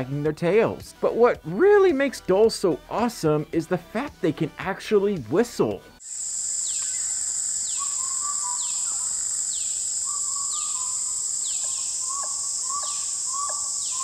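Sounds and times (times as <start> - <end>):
steady high hiss: 6.0 - 14.0
dholes whistling: 6.4 - 14.0
falling chirp: 6.5 - 14.0.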